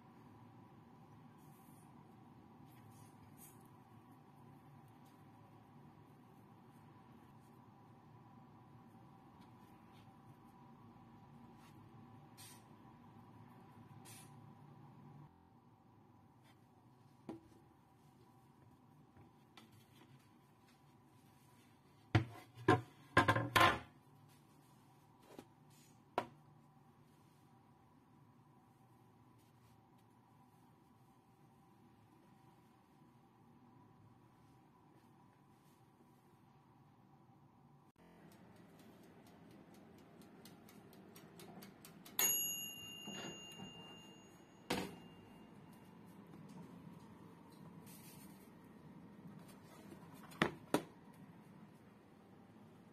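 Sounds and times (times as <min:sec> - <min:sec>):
timer bell ringing: 0:42.1 - 0:45.8
faint high tone hum: 0:42.2 - 0:50.0.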